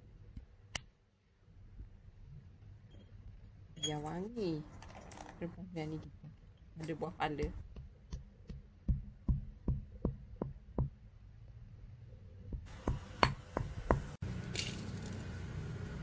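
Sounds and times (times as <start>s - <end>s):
low background noise: 0.0s - 16.0s
pestle pounding in stone mortar: 7.4s - 11.0s, 12.5s - 14.2s.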